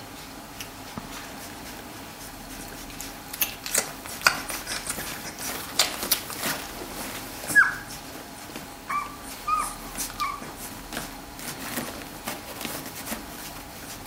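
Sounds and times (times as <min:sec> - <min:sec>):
puppies squeaking: 0:07.4 - 0:08.1, 0:08.8 - 0:10.7.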